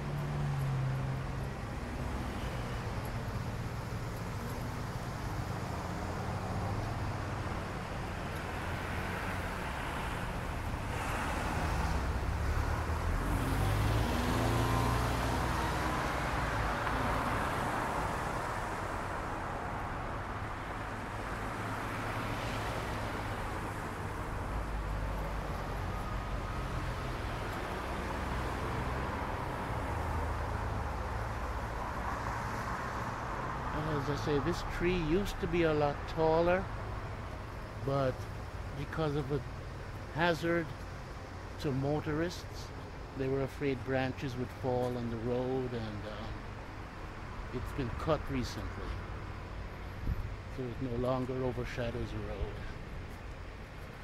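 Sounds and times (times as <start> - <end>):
road traffic: 0.0 - 54.0
vehicle passing close: 8.8 - 18.5.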